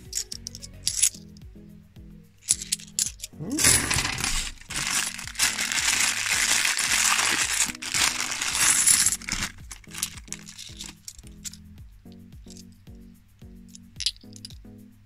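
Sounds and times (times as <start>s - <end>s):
coins clinking: 0.0s - 1.4s, 2.3s - 11.7s, 12.4s - 12.8s, 13.7s - 14.7s
plastic bag rustling: 2.5s - 11.6s.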